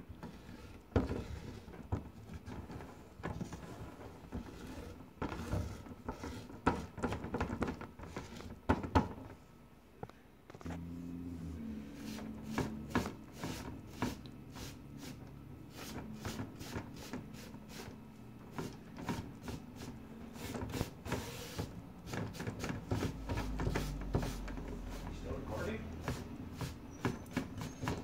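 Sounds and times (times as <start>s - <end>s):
pad scrubbing mosaic tiles: 11.4s - 28.0s.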